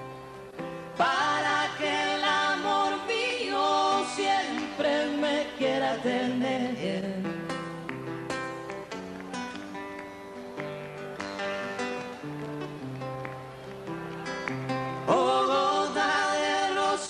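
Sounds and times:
plucked acoustic guitar: 0:00.0 - 0:17.0
man and woman singing duet: 0:01.0 - 0:07.6, 0:15.1 - 0:17.0.

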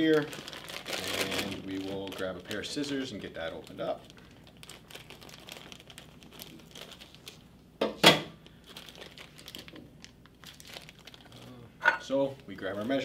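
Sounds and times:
loud crackling rip: 0:00.0 - 0:01.9
plastic package crinkling: 0:00.0 - 0:07.4, 0:08.4 - 0:11.5, 0:12.3 - 0:13.0.

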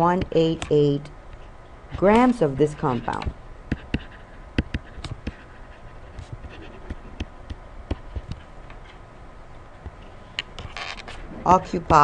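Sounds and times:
faint hum: 0:00.0 - 0:12.0
pen writing taps and scratches: 0:02.0 - 0:05.5, 0:07.9 - 0:08.5.

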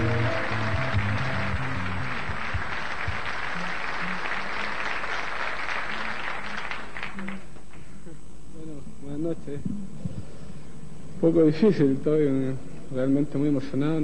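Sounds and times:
background music: 0:00.0 - 0:05.1
audience applauding: 0:00.0 - 0:08.0.

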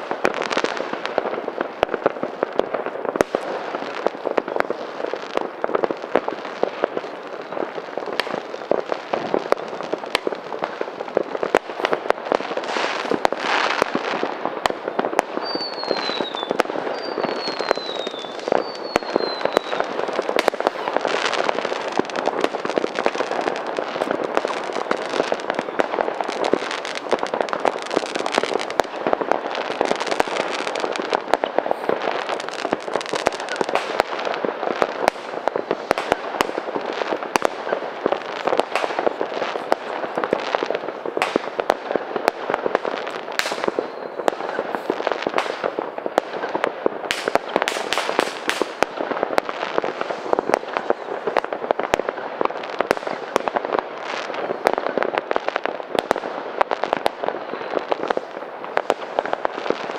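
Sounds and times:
fireworks crackling and banging: 0:00.0 - 0:59.9
firework falling whistle: 0:12.7 - 0:28.8, 0:43.2 - 0:45.7.

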